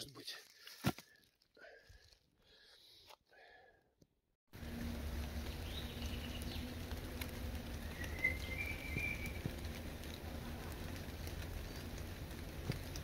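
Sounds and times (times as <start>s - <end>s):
low rumble: 4.6s - 13.0s
bird calling: 7.6s - 9.6s.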